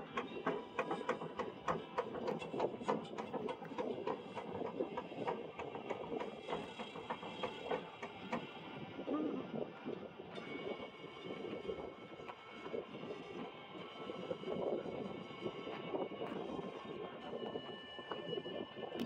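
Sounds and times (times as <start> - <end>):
rapid knocking on boat: 0.0 - 8.7.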